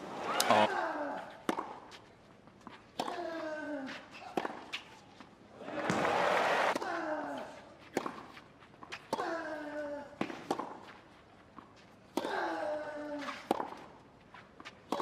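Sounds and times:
tennis player grunting: 0.3s - 1.4s, 12.2s - 13.5s.

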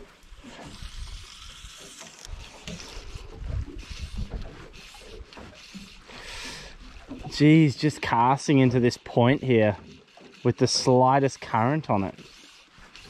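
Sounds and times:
waves lapping against boat hull: 0.0s - 13.0s
wind noise on microphone: 0.6s - 4.7s.

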